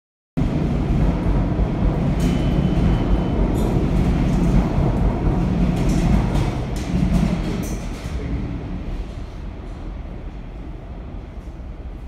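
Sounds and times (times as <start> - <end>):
subway train rumble: 0.4 - 12.0.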